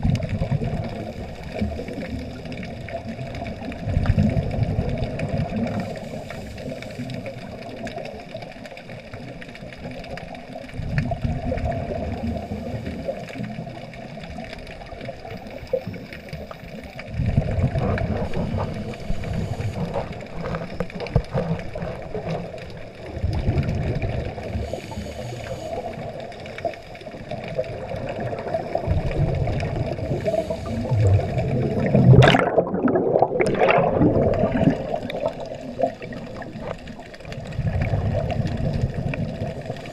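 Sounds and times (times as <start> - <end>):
underwater bubbles gurgling: 0.0 - 39.9
steady hiss: 5.7 - 7.8, 18.1 - 21.2, 24.4 - 27.5, 28.4 - 31.6.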